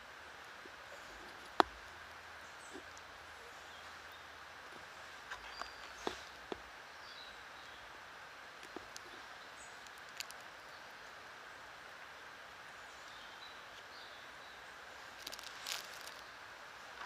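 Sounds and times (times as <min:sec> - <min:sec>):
steady background hiss: 0:00.0 - 0:17.0
faint bird chirps: 0:00.7 - 0:08.0
small clicks: 0:09.8 - 0:10.5.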